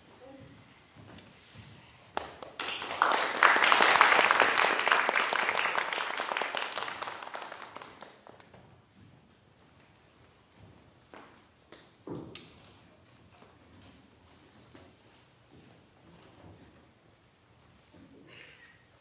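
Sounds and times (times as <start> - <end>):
audience applause: 2.2 - 8.5.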